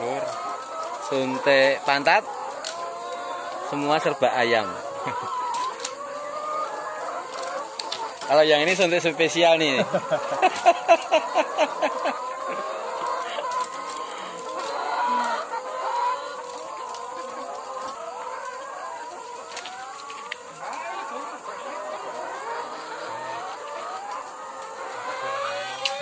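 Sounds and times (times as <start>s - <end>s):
hens clucking and calling: 0.0s - 26.0s.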